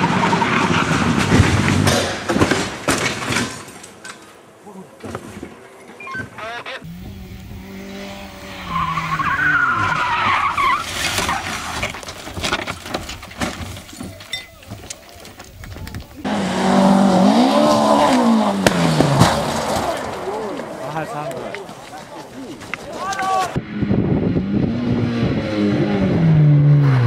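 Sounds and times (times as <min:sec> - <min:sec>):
car rolling over with bangs: 0:00.0 - 0:03.8, 0:17.6 - 0:20.8
tyres skidding: 0:00.0 - 0:23.7
rally car engine revving: 0:06.7 - 0:11.8, 0:16.2 - 0:20.8, 0:23.6 - 0:27.0.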